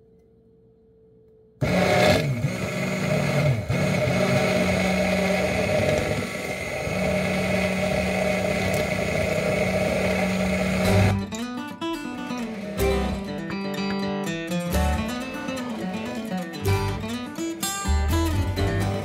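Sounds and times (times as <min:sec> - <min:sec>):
immersion blender motor running: 0:01.6 - 0:11.2.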